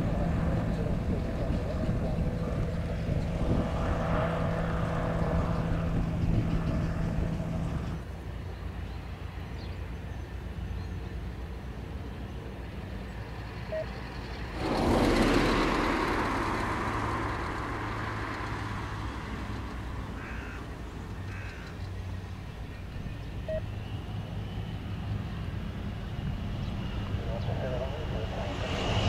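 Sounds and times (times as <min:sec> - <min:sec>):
turboprop engines droning: 0:00.0 - 0:29.0
rushing noise: 0:14.4 - 0:21.4
short bird calls: 0:20.1 - 0:22.0.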